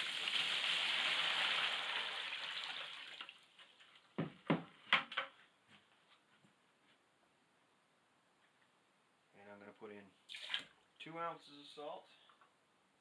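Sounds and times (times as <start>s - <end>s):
water pouring into plastic tub: 0.0s - 4.1s, 10.3s - 10.8s.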